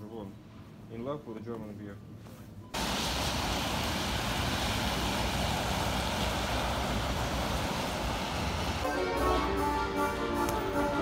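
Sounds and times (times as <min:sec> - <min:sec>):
road traffic passing: 0:02.8 - 0:11.0.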